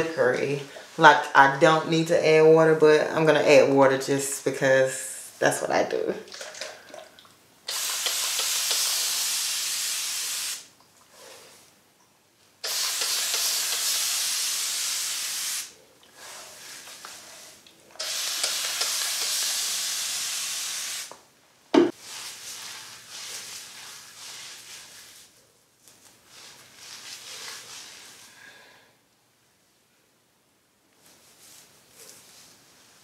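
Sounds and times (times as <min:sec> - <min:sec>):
spray bottle hissing: 0:07.7 - 0:10.7, 0:12.6 - 0:15.7, 0:18.0 - 0:21.2.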